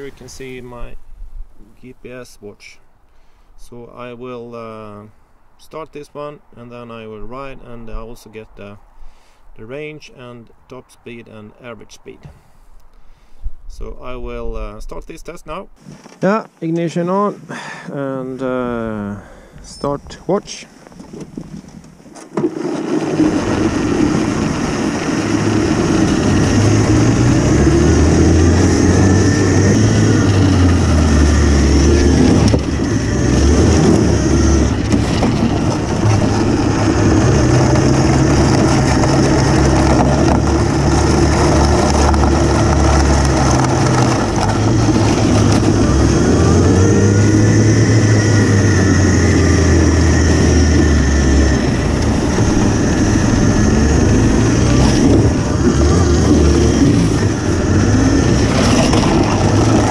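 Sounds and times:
electric snowmobile driving over snow: 0:20.8 - 0:59.9.

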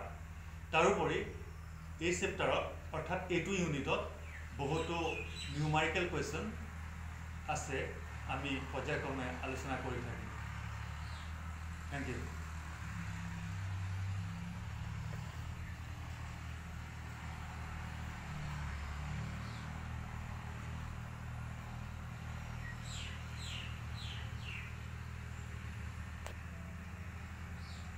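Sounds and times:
small bird chirping: 0:22.4 - 0:25.6.

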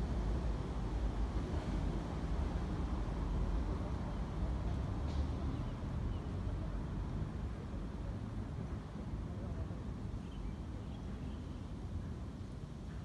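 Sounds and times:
faint distant voices: 0:03.5 - 0:11.7.

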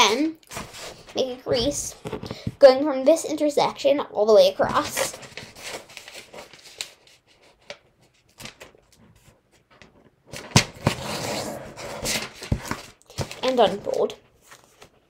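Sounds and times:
paper being folded and creased: 0:04.7 - 0:09.6, 0:10.3 - 0:15.0.

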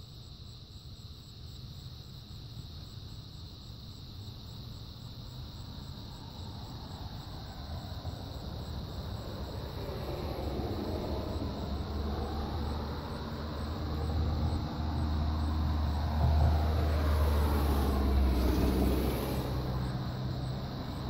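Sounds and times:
vehicle engine drone passing: 0:05.7 - 0:21.0.

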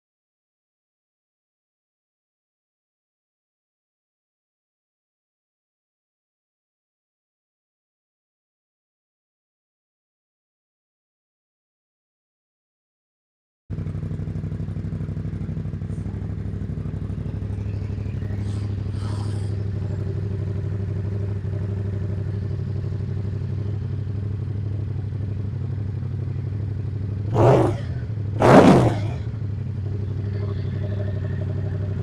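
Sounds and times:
motorcycle engine idling: 0:13.7 - 0:32.0
motorcycle throttle blips: 0:13.7 - 0:32.0.

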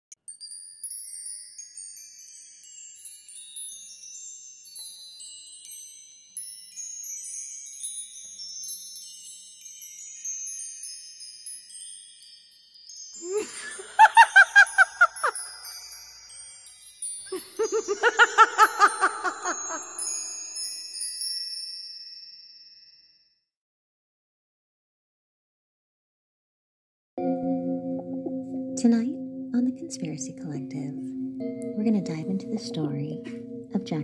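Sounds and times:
high tinkling chimes: 0:00.2 - 0:23.5
fast pulsing cackle: 0:13.3 - 0:15.6, 0:17.3 - 0:20.1.

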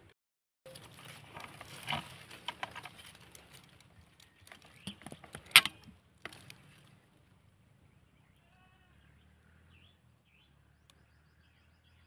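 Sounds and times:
air rifle metallic clicks and rattles: 0:00.7 - 0:06.6.

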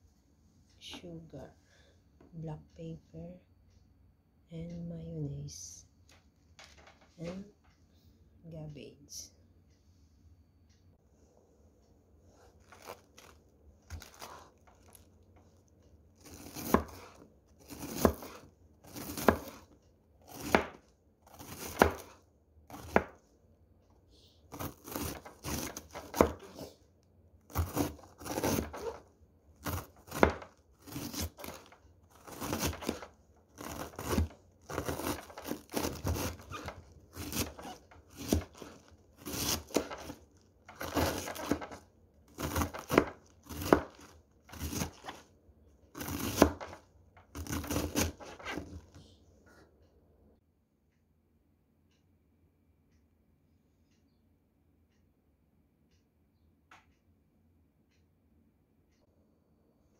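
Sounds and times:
knife slicing cabbage on a board: 0:12.4 - 0:15.1, 0:16.2 - 0:23.2, 0:24.5 - 0:26.8, 0:27.5 - 0:29.0, 0:29.6 - 0:45.3, 0:45.9 - 0:49.0.

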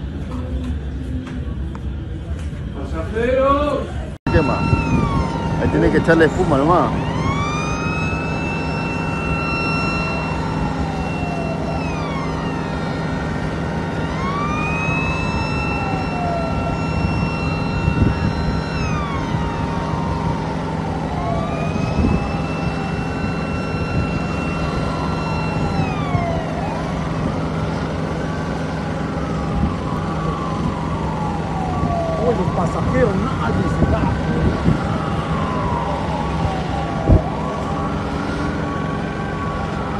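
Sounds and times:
emergency sirens wailing: 0:04.0 - 0:39.9
steady low drone: 0:04.3 - 0:32.1.

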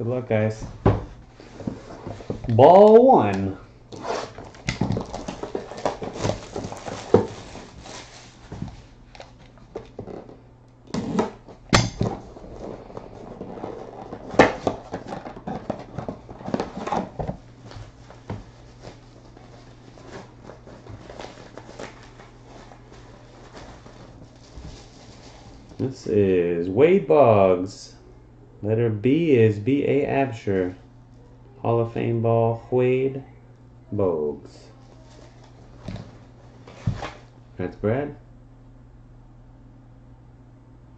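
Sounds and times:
steady low hum: 0:00.0 - 0:40.9
plastic shrink-wrap crinkling: 0:03.9 - 0:10.3, 0:12.2 - 0:25.9.

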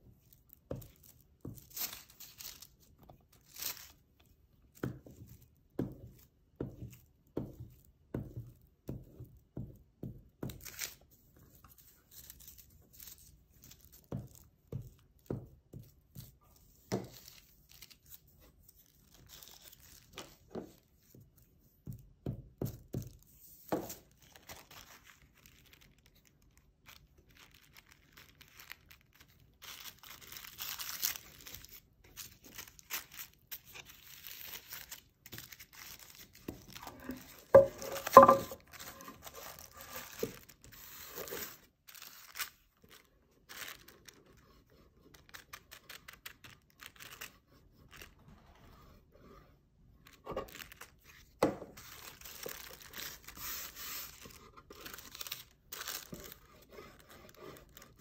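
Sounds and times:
tissue paper rustling: 0:00.1 - 0:04.4, 0:23.4 - 0:48.2, 0:50.0 - 0:58.0
wooden board knocking on table: 0:36.9 - 0:38.6.

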